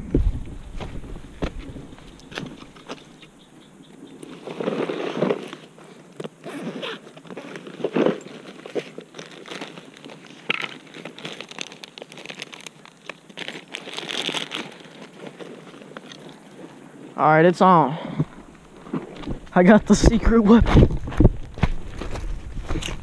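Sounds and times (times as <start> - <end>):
fabric bag rustling: 4.3 - 17.2
zipper: 4.4 - 5.7, 6.4 - 9.0.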